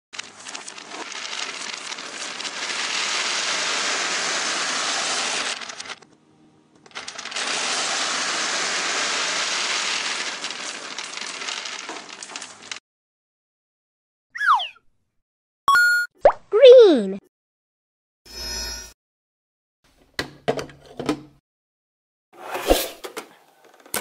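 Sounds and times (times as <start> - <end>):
plastic beads pouring and rattling: 0.2 - 6.0, 6.9 - 12.8.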